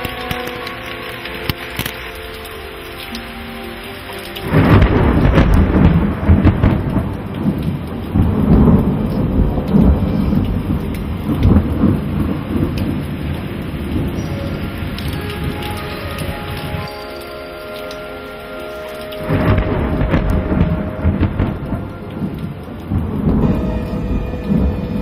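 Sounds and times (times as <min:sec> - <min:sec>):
heavy rain pouring: 0:00.0 - 0:25.0
thunder rumbling: 0:04.4 - 0:16.9, 0:19.2 - 0:25.0.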